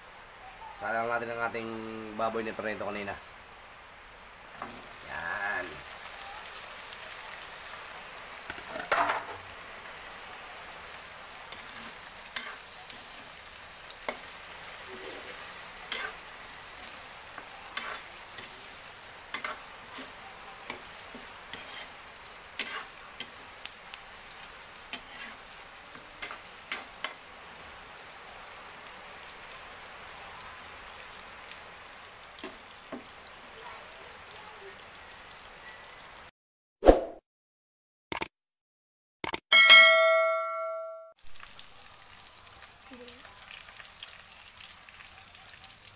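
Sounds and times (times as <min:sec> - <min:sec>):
meat sizzling in a wok: 0:00.0 - 0:36.3, 0:41.2 - 0:45.9
metal spatula scraping pan: 0:11.5 - 0:13.2, 0:14.1 - 0:16.2, 0:17.7 - 0:22.0, 0:22.6 - 0:23.4, 0:24.9 - 0:27.2.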